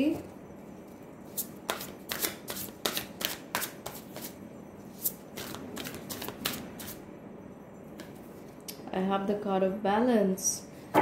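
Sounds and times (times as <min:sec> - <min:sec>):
cards being shuffled: 0:01.4 - 0:04.3, 0:05.0 - 0:07.0.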